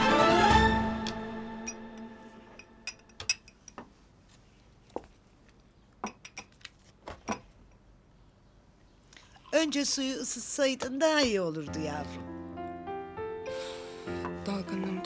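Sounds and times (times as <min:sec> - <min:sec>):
crockery and utensils clinking: 0:01.6 - 0:03.9.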